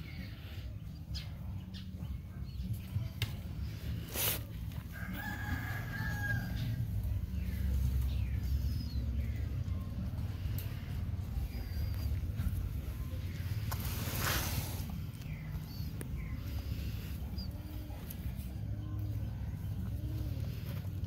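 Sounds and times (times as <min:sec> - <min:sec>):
steady low rumble: 0:06.4 - 0:21.0.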